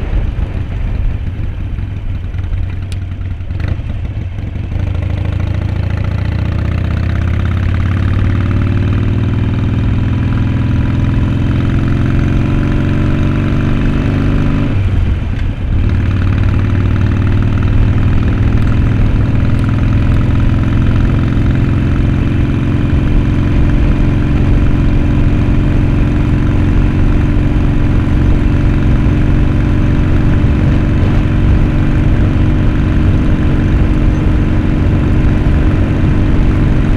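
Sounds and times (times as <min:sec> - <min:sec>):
motorcycle engine running: 0:00.0 - 0:36.9.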